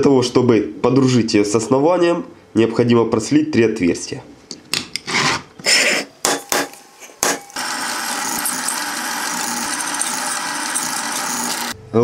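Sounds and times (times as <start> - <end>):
drill press drilling steel: 6.4 - 11.8.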